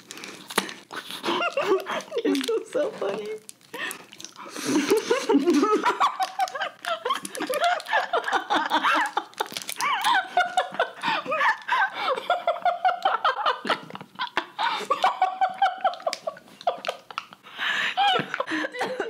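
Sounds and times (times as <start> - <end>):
women laughing and giggling: 1.2 - 3.0, 4.6 - 19.0.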